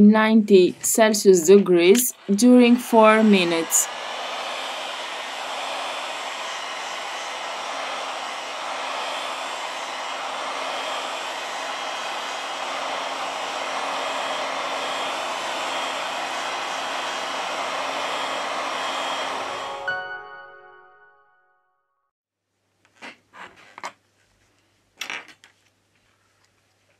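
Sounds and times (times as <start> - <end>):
heat gun blowing hot air: 1.9 - 19.7.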